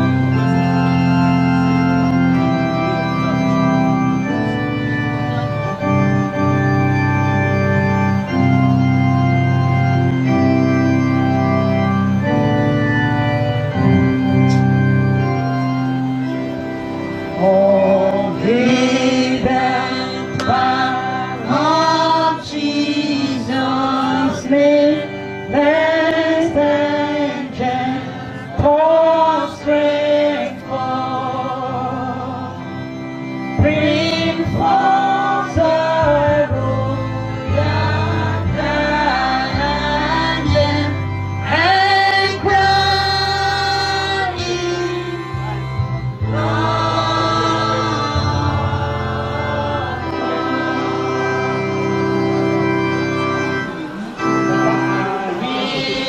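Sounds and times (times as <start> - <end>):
electronic keyboard: 0.0 - 56.0
women singing a hymn: 17.4 - 32.9, 33.5 - 56.0.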